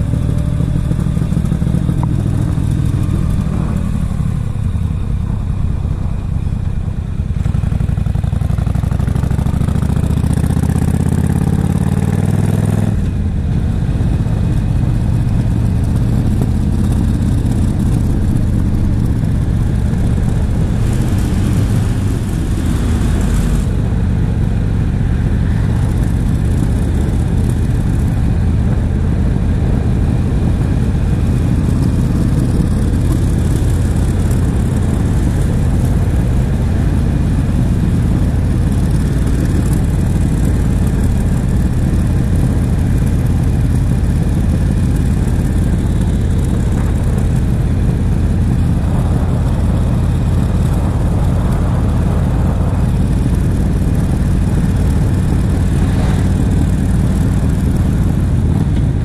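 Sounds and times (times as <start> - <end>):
motorcycle engine running: 0.0 - 59.0
road noise: 0.0 - 59.0
wind rushing: 46.4 - 59.0.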